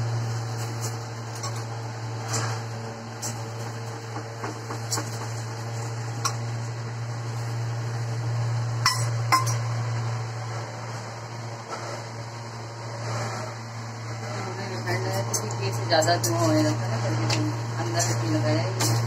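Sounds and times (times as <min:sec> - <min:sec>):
steady low hum: 0:00.0 - 0:19.0
spoon clinking against steel bowl: 0:08.8 - 0:09.6.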